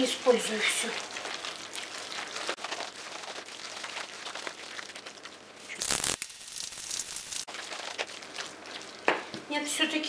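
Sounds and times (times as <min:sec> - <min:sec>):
hand mixing wet batter: 0:00.0 - 0:05.8, 0:07.4 - 0:10.0.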